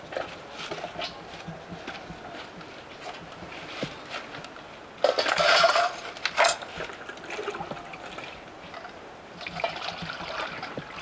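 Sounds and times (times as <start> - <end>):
steel dishes clattering and scraping: 5.0 - 6.7.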